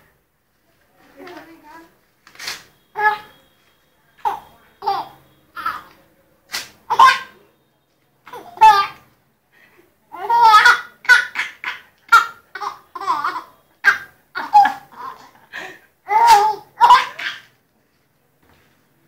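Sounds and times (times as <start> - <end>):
baby laughing: 6.9 - 7.3, 8.3 - 9.0, 10.2 - 15.4, 16.1 - 17.5.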